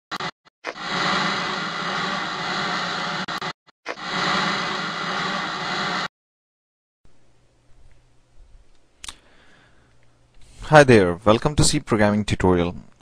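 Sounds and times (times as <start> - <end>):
static-like noise: 0.1 - 6.1.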